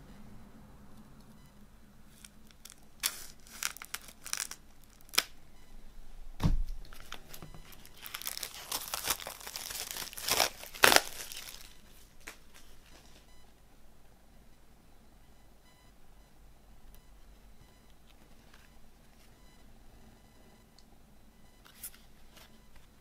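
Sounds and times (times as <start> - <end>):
plastic film crinkling: 2.1 - 5.4, 6.7 - 13.3
knife slitting plastic wrap: 2.6 - 5.3, 7.9 - 11.7
dull thump: 6.4 - 6.8.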